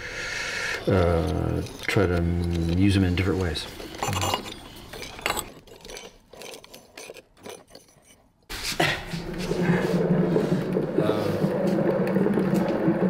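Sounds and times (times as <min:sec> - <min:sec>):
ceramic tiles clicking and scraping: 0:00.7 - 0:08.3
wheeled dolly rolling on floor: 0:00.8 - 0:08.2, 0:09.1 - 0:13.0.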